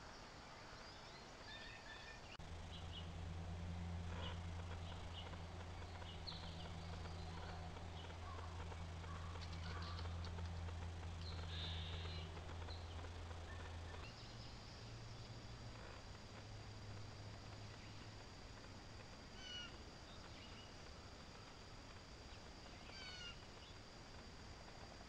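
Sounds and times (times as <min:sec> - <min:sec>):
birds chirping: 0:00.0 - 0:25.0
steady low hum: 0:00.0 - 0:25.0.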